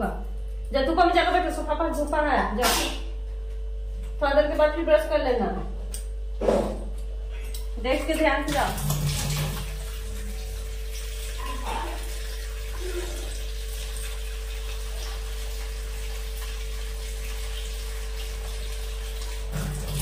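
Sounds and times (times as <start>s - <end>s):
kitchen tap running: 7.8s - 20.0s
vegetables rinsed in steel bowl: 7.9s - 20.0s.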